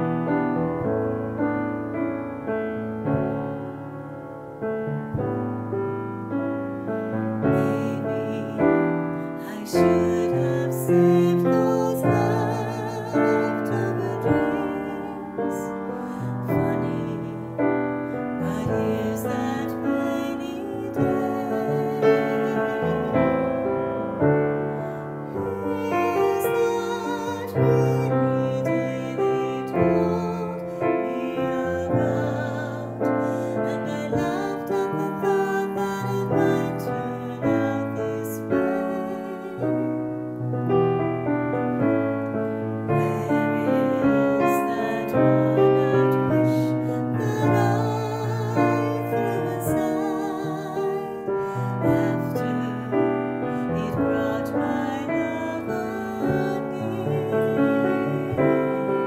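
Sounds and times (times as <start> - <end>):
grand piano: 0.0 - 59.0
woman singing a ballad: 6.8 - 41.6, 42.3 - 59.0.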